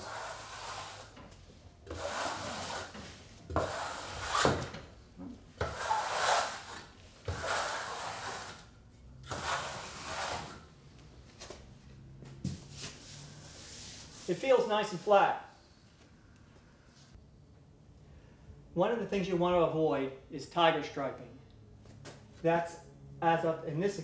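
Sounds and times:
trowel scraping membrane: 0:00.0 - 0:01.2, 0:01.9 - 0:04.6, 0:05.6 - 0:08.7, 0:09.3 - 0:10.6.

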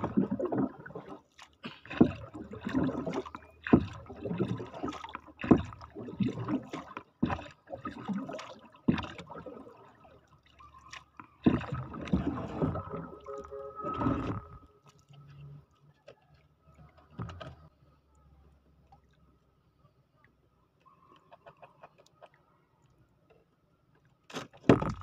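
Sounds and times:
wooden paddle splashing: 0:00.0 - 0:15.1, 0:24.3 - 0:25.0
water sloshing: 0:00.0 - 0:17.7.

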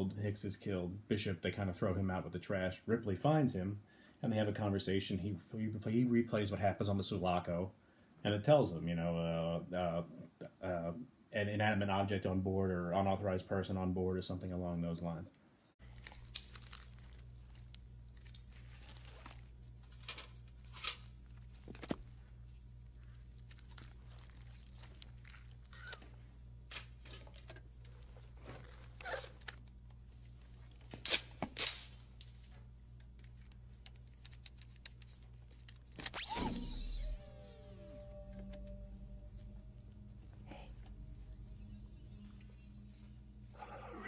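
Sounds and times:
low electrical hum: 0:00.0 - 0:44.0
small sharp clicks: 0:15.8 - 0:43.6.

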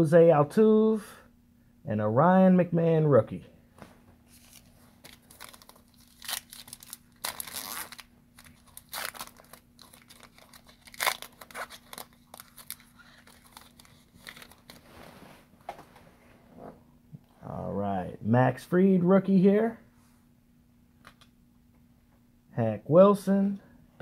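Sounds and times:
foil wrapper tearing and crinkling: 0:04.3 - 0:14.8.

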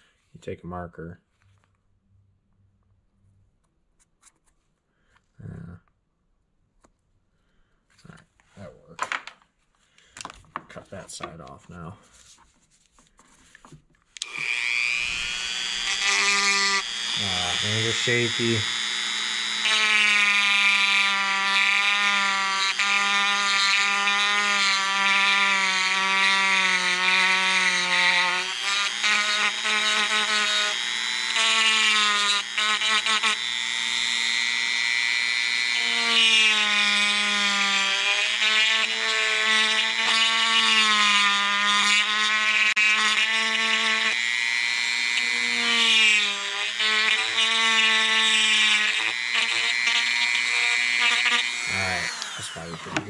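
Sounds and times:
rotary tool whining: 0:13.5 - 0:53.0.

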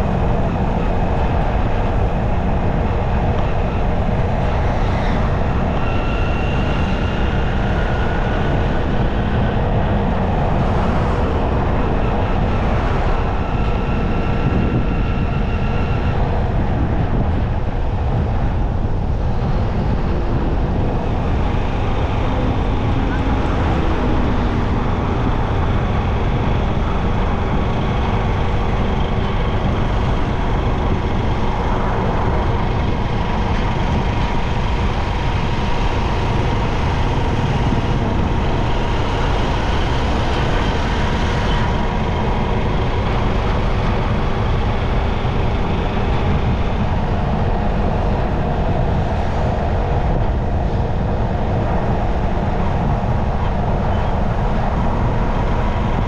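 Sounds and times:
road traffic rumble: 0:00.0 - 0:56.0.

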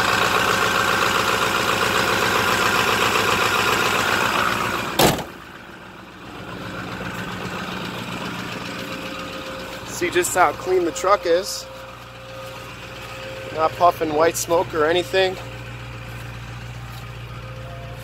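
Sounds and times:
diesel truck engine idling: 0:00.0 - 0:18.0
hood slamming shut: 0:04.9 - 0:05.5.

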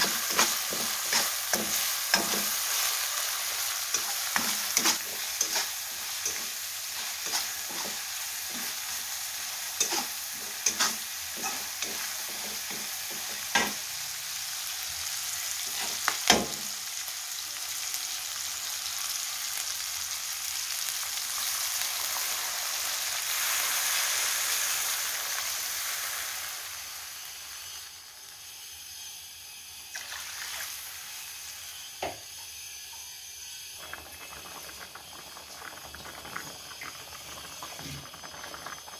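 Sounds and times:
spatula scraping metal pan: 0:00.0 - 0:13.8
liquid bubbling in pan: 0:00.0 - 0:17.0, 0:29.9 - 0:38.9
food sizzling in hot oil: 0:00.0 - 0:38.9.

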